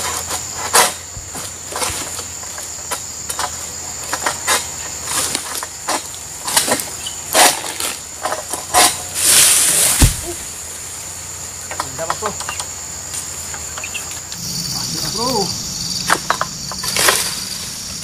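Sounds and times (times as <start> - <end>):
fronds rustling: 0.0 - 18.0
high insect drone: 0.0 - 18.0
heavy thud: 9.8 - 10.6
sickle cutting cracks: 16.8 - 17.4.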